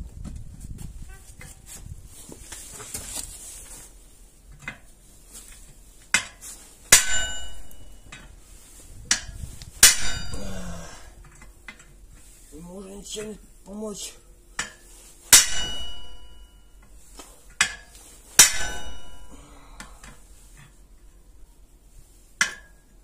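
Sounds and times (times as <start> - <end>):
hammer striking metal rim: 6.9 - 8.2, 9.1 - 10.5, 14.6 - 16.7, 17.6 - 19.4
metal ringing: 6.9 - 8.3, 9.1 - 11.0, 14.6 - 16.9, 17.6 - 19.6.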